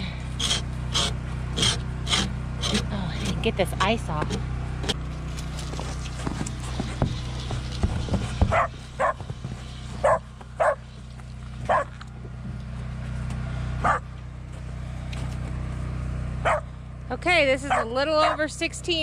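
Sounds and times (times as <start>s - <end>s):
dog barking: 8.5s - 9.2s, 10.0s - 10.8s, 11.7s - 11.9s, 13.8s - 14.0s, 16.4s - 16.6s, 17.7s - 18.4s.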